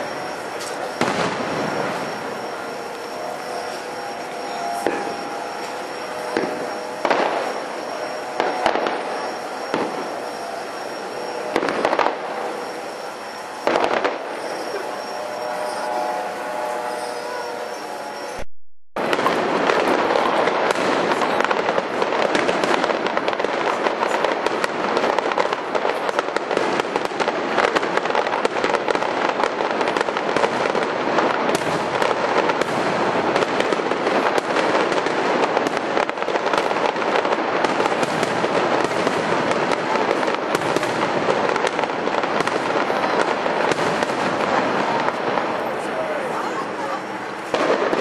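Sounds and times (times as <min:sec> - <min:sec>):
fireworks bangs and crackles: 0:00.0 - 0:18.4, 0:19.0 - 0:48.0.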